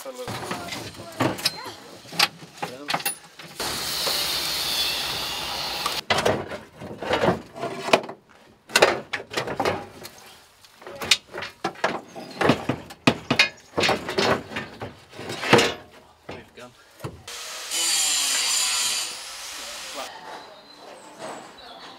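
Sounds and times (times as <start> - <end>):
metal scrapes and clunks: 0.3 - 3.6, 6.0 - 17.3.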